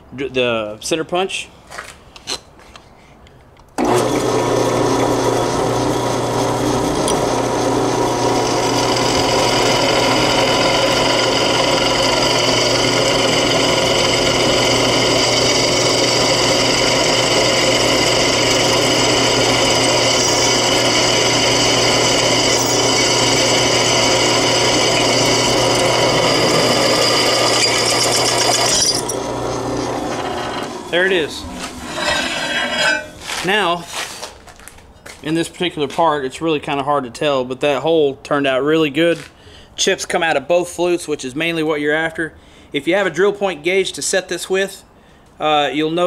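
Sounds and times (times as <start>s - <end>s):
drill bit cutting into metal: 3.8s - 30.9s, 31.8s - 33.2s
drill press motor hum: 3.8s - 33.1s.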